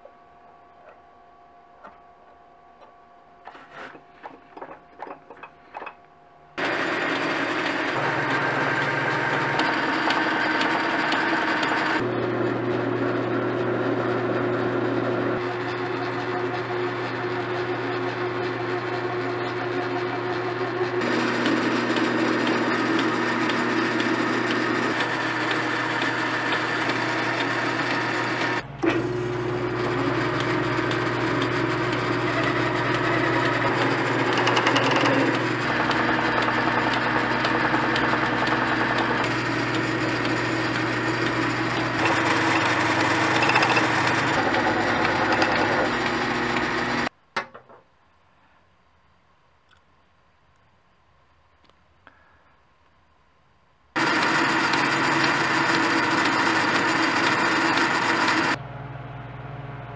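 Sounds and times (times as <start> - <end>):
cutting tool scraping metal: 3.4 - 4.3, 30.3 - 47.1
metal lathe motor hum: 6.6 - 47.1, 54.0 - 58.6.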